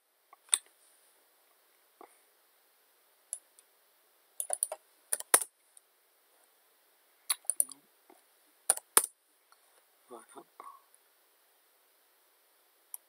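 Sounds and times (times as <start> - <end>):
computer keyboard keystrokes: 4.4 - 5.5, 8.7 - 9.1.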